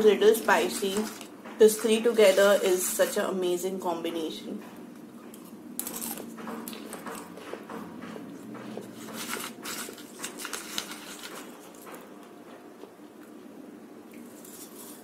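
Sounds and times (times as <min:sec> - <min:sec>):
crunchy chewing of snack: 0:05.2 - 0:07.6, 0:08.5 - 0:13.4.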